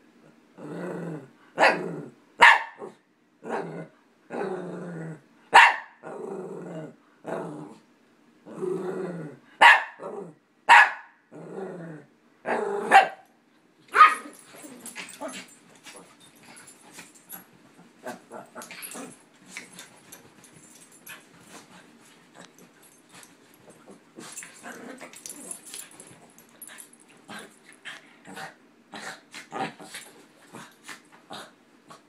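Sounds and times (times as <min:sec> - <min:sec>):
dogs barking sharply: 0:02.4 - 0:02.8, 0:05.5 - 0:06.0, 0:09.6 - 0:10.0, 0:10.7 - 0:11.1, 0:13.9 - 0:14.4
dogs growling: 0:08.5 - 0:09.4, 0:11.3 - 0:12.9, 0:14.1 - 0:20.2, 0:21.0 - 0:32.0.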